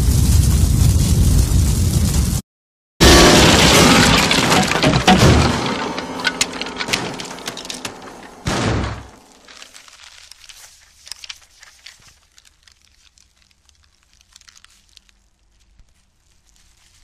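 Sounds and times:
debris settling after impact: 3.0s - 15.0s
falling pieces and paper crackling: 3.0s - 17.0s.

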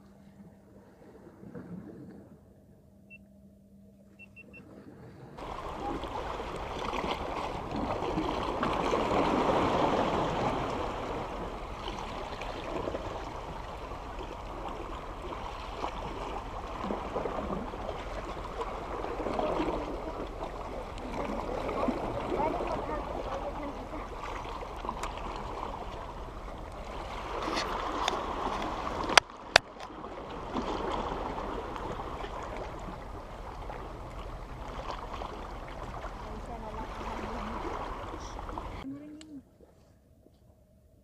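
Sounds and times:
faint high beeps: 3.0s - 4.7s
water gurgling against rocks: 5.4s - 38.8s.

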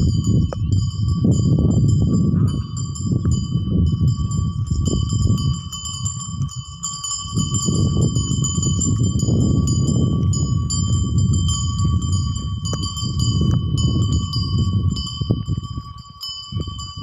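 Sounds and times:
animal bells jingling: 0.0s - 17.0s.

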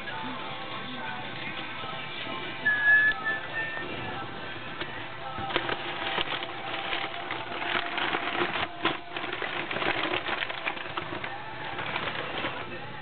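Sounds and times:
packing paper crinkling: 5.4s - 13.0s.

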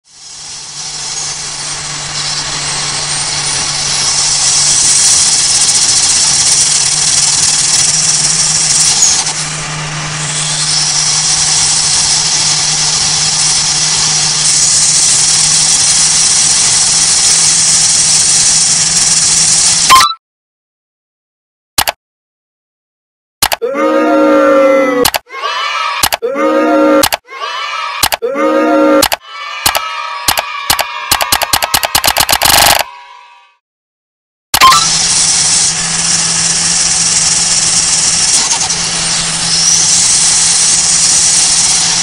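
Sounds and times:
low engine drone: 0.1s - 16.9s, 23.6s - 25.1s, 26.2s - 27.2s, 28.3s - 29.1s
turbo whistle: 19.8s - 20.2s, 23.4s - 25.2s, 26.0s - 27.2s, 28.0s - 33.1s, 34.6s - 35.5s.

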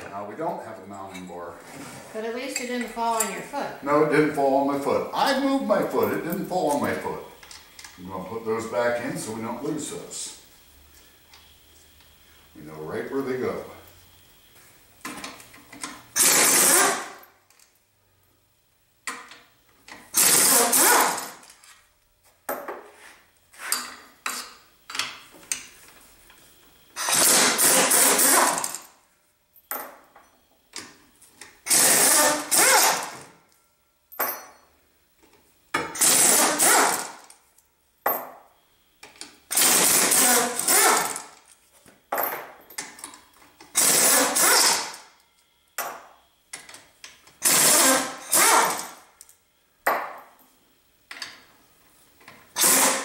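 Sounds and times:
pneumatic impact wrench: 15.0s - 17.4s, 19.1s - 21.5s, 26.9s - 29.0s, 31.5s - 33.4s, 35.8s - 37.4s, 39.5s - 41.4s, 43.6s - 45.1s, 47.3s - 49.1s, 52.5s - 53.0s.

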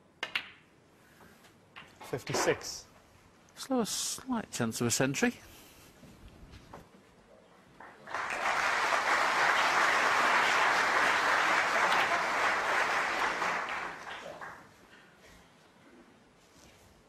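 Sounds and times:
audience applauding: 7.8s - 14.7s.

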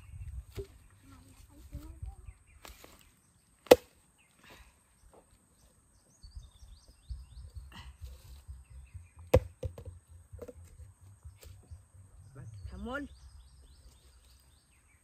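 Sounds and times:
sharp chopping strikes: 3.6s - 3.9s, 9.4s - 9.9s.

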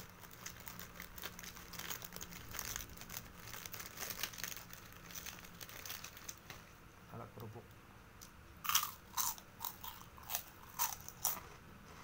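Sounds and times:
crisp chewing: 0.0s - 6.6s, 8.6s - 11.5s.

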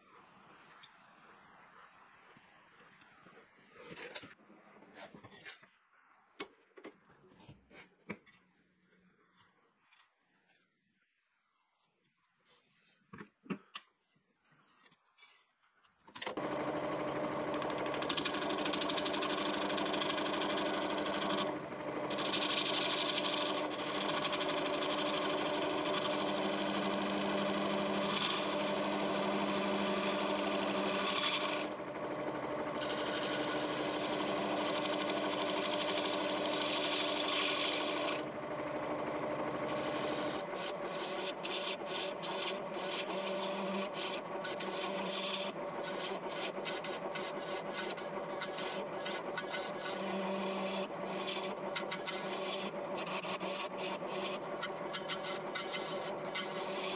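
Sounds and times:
tool scraping spinning wood: 16.3s - 56.9s
wood lathe humming: 16.4s - 56.9s.

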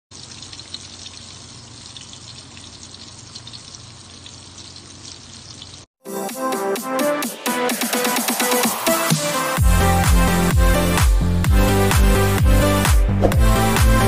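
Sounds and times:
fish deep-frying in oil: 0.1s - 5.9s
upbeat electronic music: 6.0s - 14.0s.

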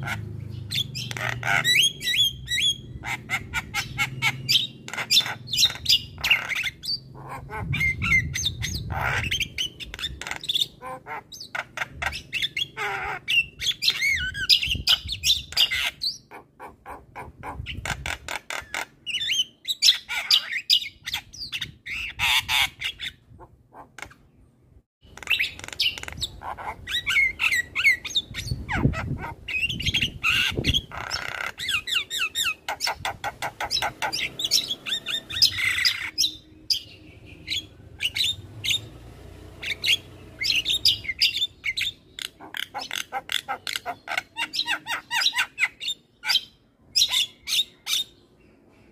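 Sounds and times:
bird chattering song: 0.0s - 48.9s.

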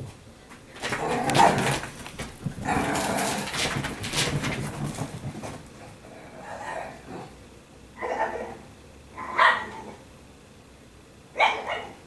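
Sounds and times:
dog play-growling: 0.8s - 7.3s.

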